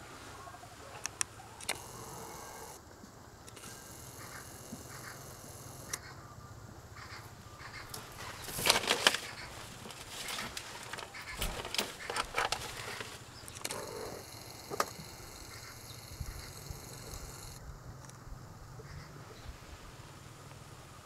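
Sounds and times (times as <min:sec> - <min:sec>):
sharp crackle: 0:07.6 - 0:18.2
hedgehog rustling and scrabbling: 0:07.7 - 0:14.2.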